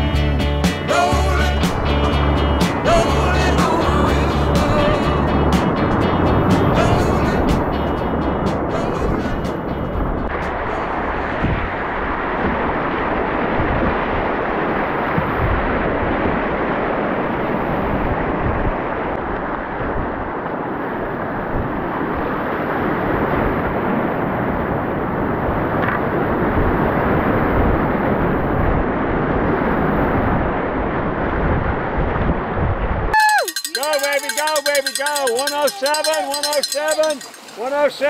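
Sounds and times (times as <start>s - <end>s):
wind buffeting microphone: 4.6s - 38.0s
river whitewater rushing: 33.2s - 38.0s.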